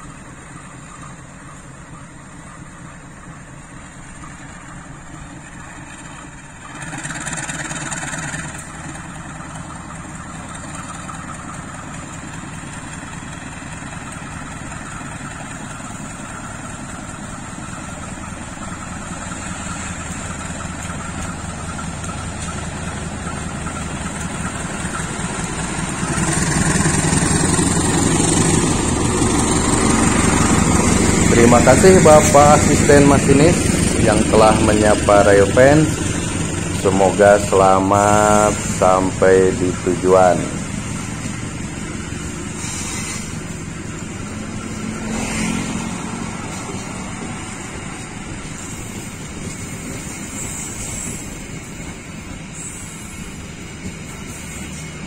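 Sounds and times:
diesel locomotive engine running: 0:00.0 - 0:55.0.

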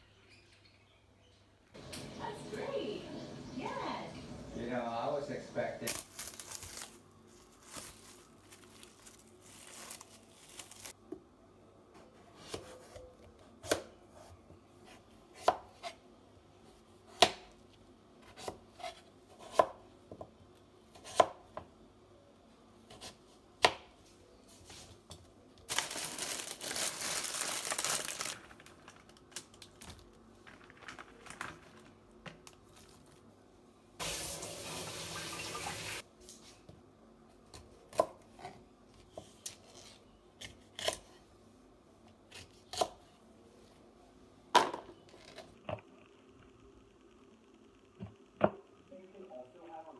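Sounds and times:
tap water running: 0:34.0 - 0:36.0.

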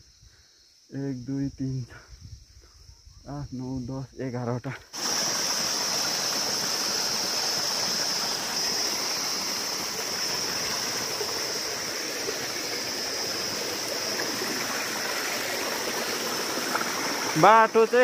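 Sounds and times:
stream running over stones: 0:04.9 - 0:18.0.

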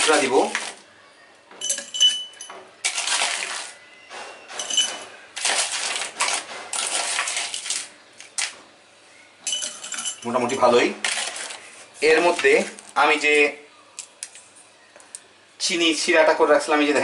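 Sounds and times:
crushed ice clinking in a glass: 0:01.6 - 0:03.8, 0:04.6 - 0:07.8.

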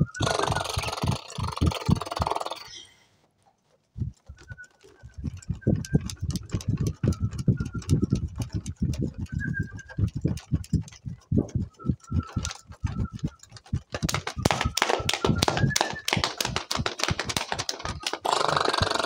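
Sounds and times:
high bird-like tones: 0:00.0 - 0:03.0
rapid tapping on a surface: 0:00.2 - 0:02.7, 0:04.0 - 0:19.0.

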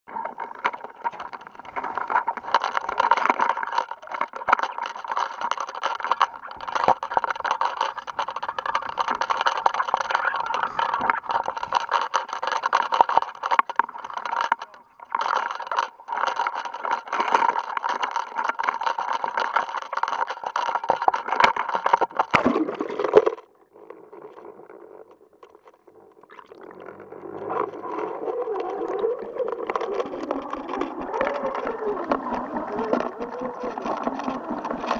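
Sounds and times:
camera scraping and rattling: 0:00.1 - 0:34.9
muffled underwater hush: 0:08.4 - 0:11.7.

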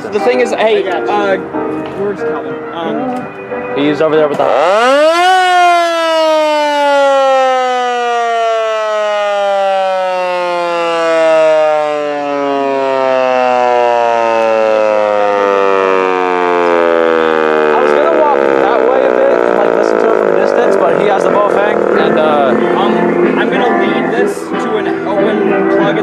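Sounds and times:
warning siren winding down: 0:04.4 - 0:24.6.

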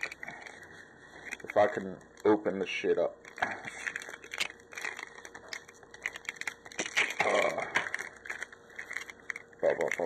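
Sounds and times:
card pack wrapper tearing and crinkling: 0:00.0 - 0:00.6, 0:03.2 - 0:10.0.

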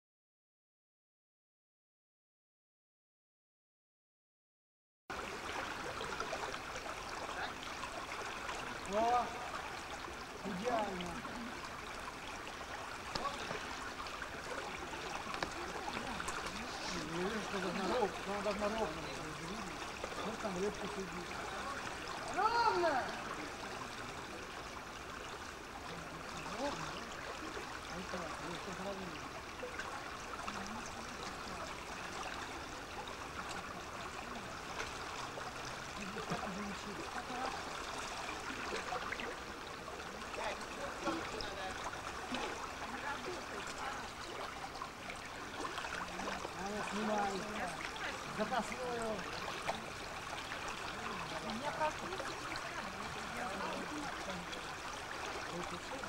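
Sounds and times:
river rushing: 0:05.2 - 0:56.0
faint voices: 0:13.1 - 0:24.9, 0:25.5 - 0:56.0.

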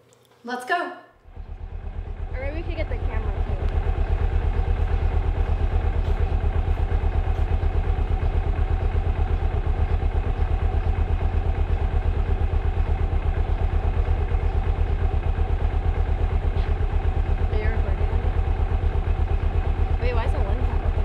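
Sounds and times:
motorcycle engine idling: 0:01.2 - 0:21.0.

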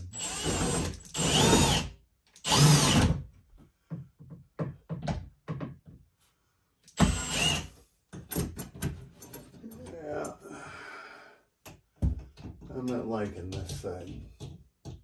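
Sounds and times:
power drill driving screws: 0:00.0 - 0:03.2, 0:07.0 - 0:07.7.

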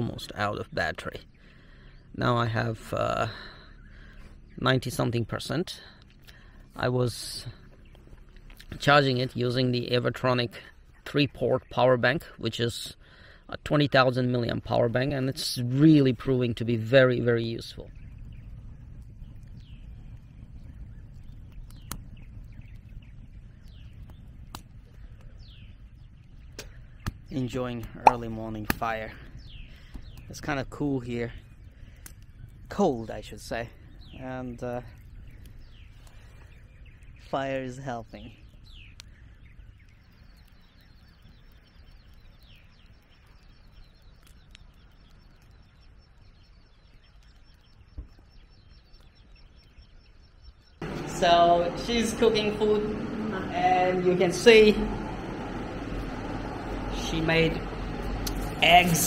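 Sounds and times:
low steady rumble: 0:00.0 - 0:12.4, 0:14.4 - 0:48.8, 0:50.6 - 0:59.0
birds chirping: 0:00.0 - 0:59.0
campfire crackling pops: 0:02.5 - 0:13.0, 0:13.9 - 0:59.0.

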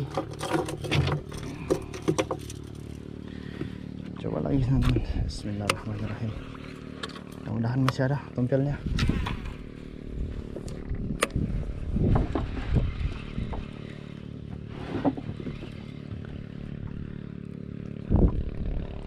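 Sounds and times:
scrapes and knocks: 0:00.0 - 0:03.0, 0:11.8 - 0:16.5
small engine running: 0:00.0 - 0:19.0.

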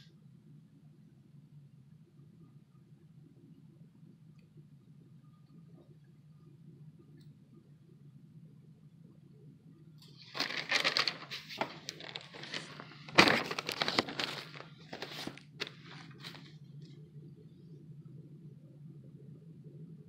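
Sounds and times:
paper pages rustling: 0:10.1 - 0:16.6.

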